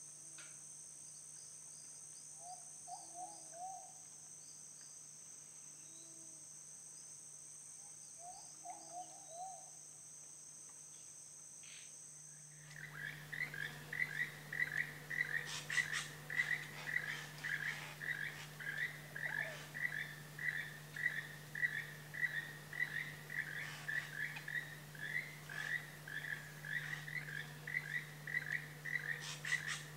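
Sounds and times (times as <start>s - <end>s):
high-pitched insect drone: 11.6s - 29.9s
frogs calling: 12.7s - 29.9s
sharp clicking calls: 12.7s - 29.9s.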